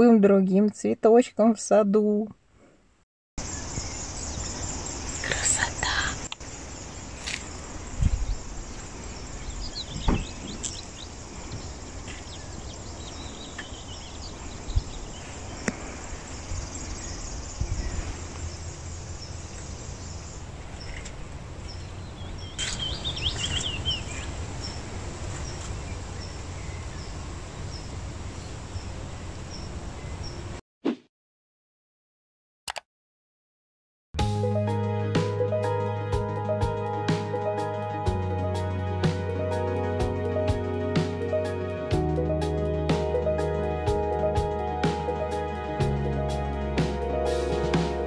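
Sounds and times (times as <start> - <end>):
birds chirping: 3.4 - 30.6.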